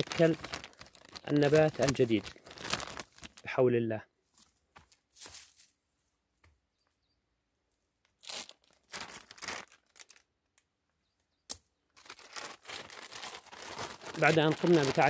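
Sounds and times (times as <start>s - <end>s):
plastic film crinkling: 0.0s - 3.5s, 8.2s - 10.3s, 12.0s - 15.0s.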